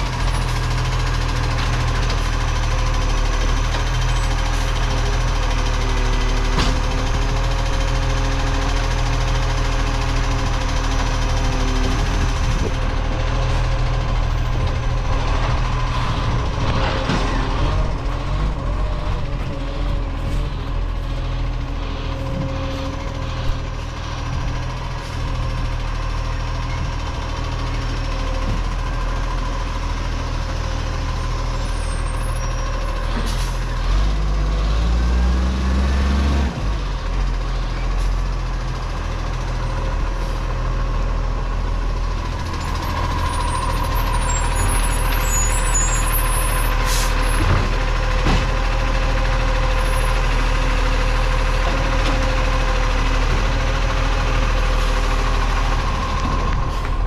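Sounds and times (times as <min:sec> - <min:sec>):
garbage truck engine revving: 0:00.0 - 0:40.1
air brake hisses: 0:46.8 - 0:47.2.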